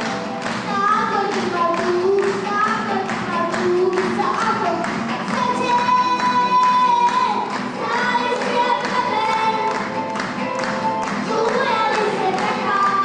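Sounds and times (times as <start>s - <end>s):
backing music with steady beat: 0.0s - 13.0s
girl singing into a microphone: 0.7s - 9.8s, 11.2s - 13.0s.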